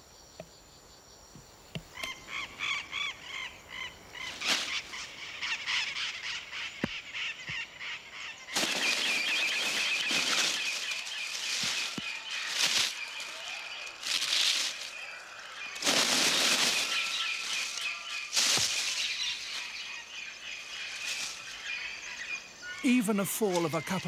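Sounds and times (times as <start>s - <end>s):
insects droning: 0.0s - 24.0s
leaves rustling and thrashing: 4.2s - 5.1s, 8.5s - 21.8s.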